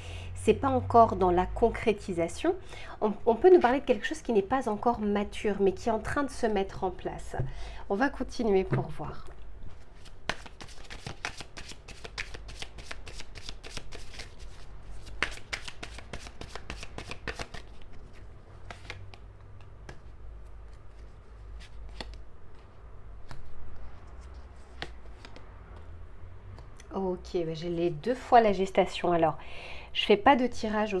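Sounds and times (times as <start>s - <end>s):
cards being shuffled: 9.7s - 25.9s.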